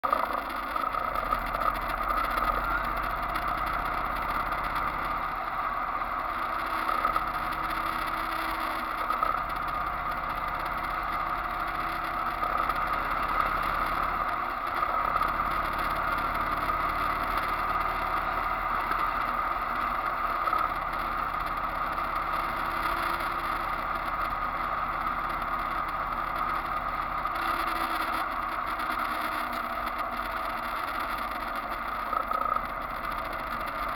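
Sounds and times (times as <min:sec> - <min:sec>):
motorcycle engine drone: 0:00.0 - 0:33.9.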